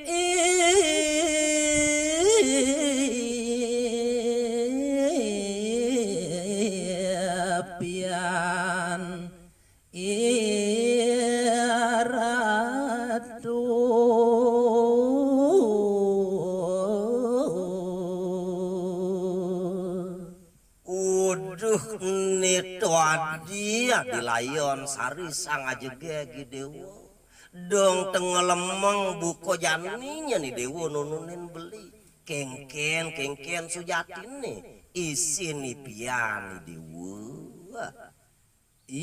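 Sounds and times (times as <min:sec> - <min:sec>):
man singing solo: 0:00.0 - 0:09.4, 0:20.9 - 0:37.9.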